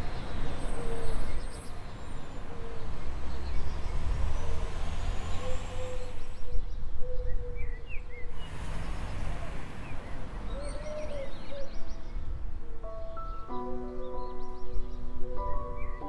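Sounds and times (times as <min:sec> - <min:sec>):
distant traffic rumble: 0:00.0 - 0:16.0.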